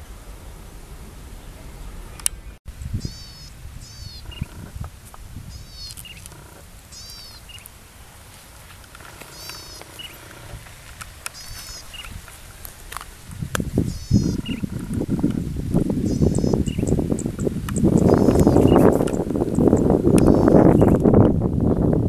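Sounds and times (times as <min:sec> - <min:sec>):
high chirps: 0:02.2 - 0:04.7, 0:11.3 - 0:12.2, 0:13.8 - 0:15.2, 0:16.0 - 0:21.0.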